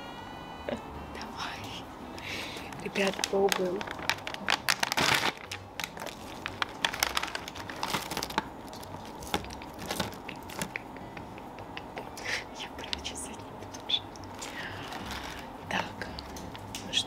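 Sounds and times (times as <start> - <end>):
foil snack bag crinkling: 2.6 - 10.8, 14.2 - 15.6
hand rummaging through snacks: 2.6 - 10.8, 14.3 - 15.6.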